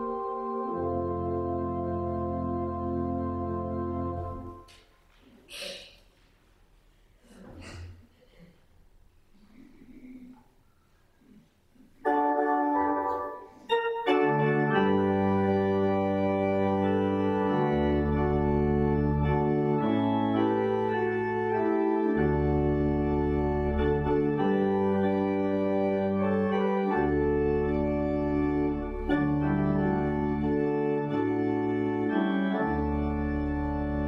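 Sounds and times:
organ playing sustained chords: 0.0 - 4.7, 12.0 - 34.0.

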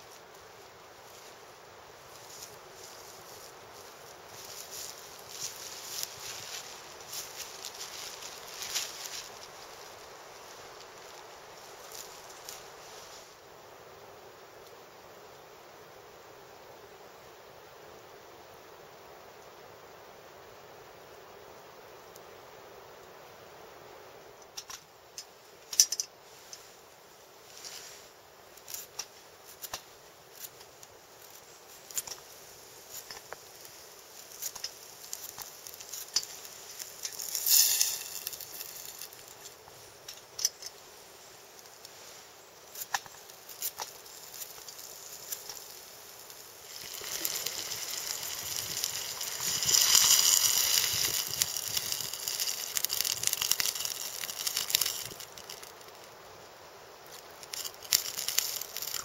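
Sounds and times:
wood stove crackling: 0.0 - 13.2, 27.5 - 59.0
steady hiss: 0.0 - 59.0.

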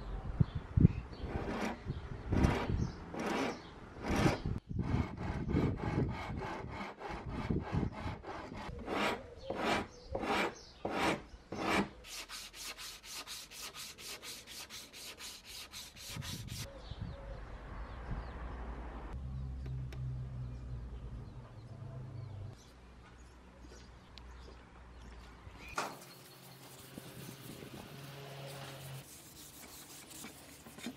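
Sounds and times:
hand file rasping on wood: 1.2 - 16.7.

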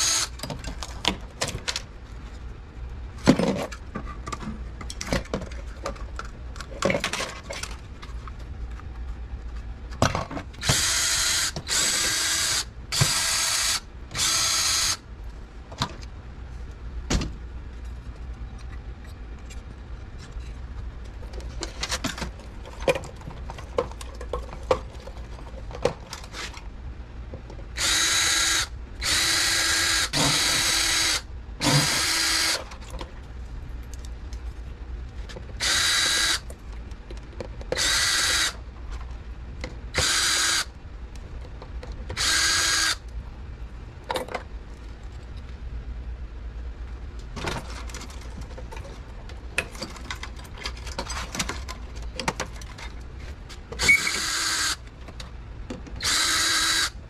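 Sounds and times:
cordless drill whining: 0.0 - 0.3, 10.6 - 15.0, 27.8 - 32.6, 35.6 - 36.4, 37.8 - 38.6, 40.0 - 40.7, 42.2 - 43.0, 53.8 - 54.8, 56.0 - 57.0.

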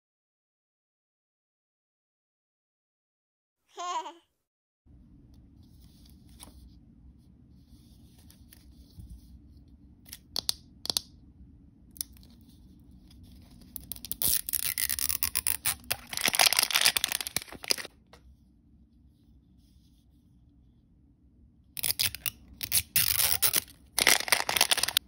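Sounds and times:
plastic wrapper crinkling: 13.8 - 17.9, 21.8 - 25.0
plastic wrapper tearing open: 13.8 - 17.9, 21.8 - 25.0.

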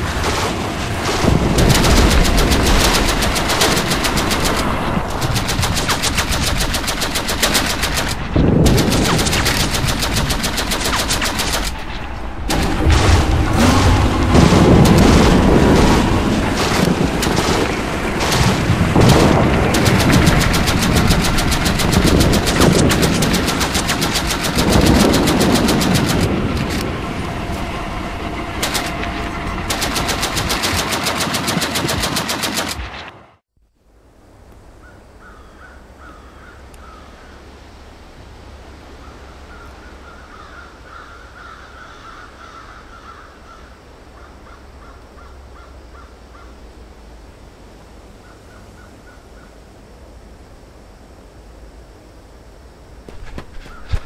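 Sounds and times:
gunshots: 0.0 - 26.8, 28.6 - 33.2
machine-gun fire: 0.2 - 26.8, 28.6 - 33.2.

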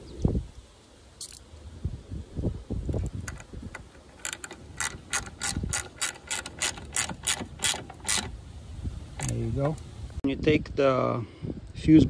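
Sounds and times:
ratchet wrench clicking: 3.3 - 8.4.

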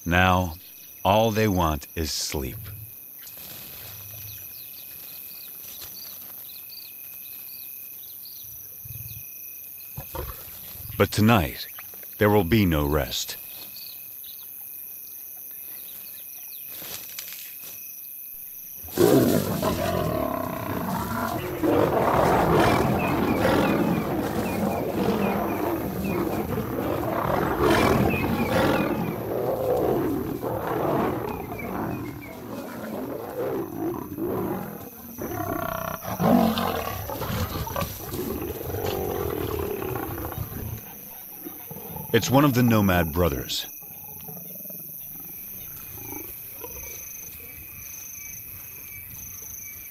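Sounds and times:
insects chirping: 0.0 - 49.9
lions growling and snarling: 10.0 - 11.6, 18.8 - 47.8.

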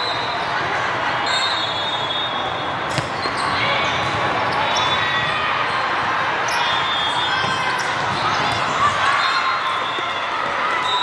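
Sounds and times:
crowded sports hall din: 0.0 - 11.0
volleyball bounces: 2.9 - 4.1, 7.4 - 9.1.

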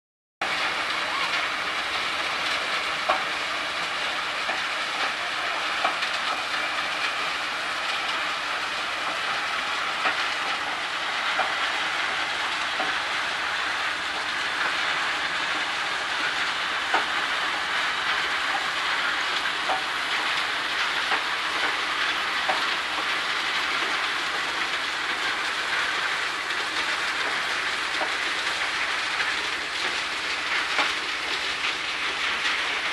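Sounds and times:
sand washing machinery clattering: 0.4 - 32.9.

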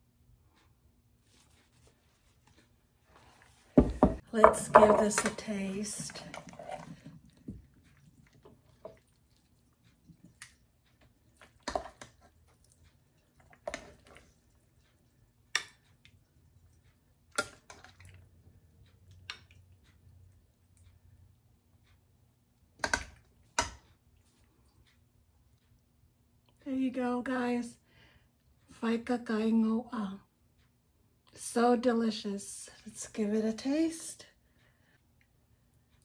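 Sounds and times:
wet sticky food sounds: 4.6 - 21.5.

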